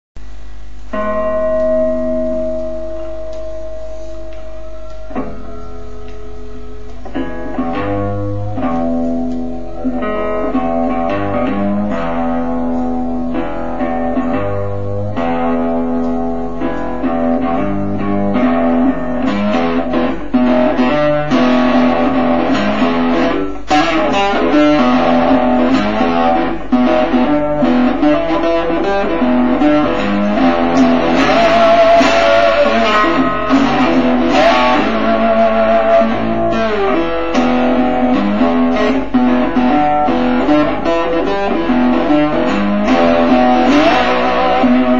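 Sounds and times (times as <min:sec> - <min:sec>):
plucked and strummed guitar: 0:00.8 - 0:44.9.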